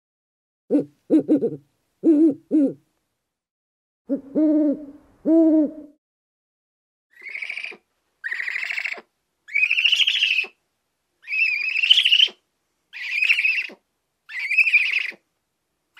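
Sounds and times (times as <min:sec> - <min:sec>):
owl screeching: 0:07.2 - 0:10.6, 0:11.2 - 0:15.2.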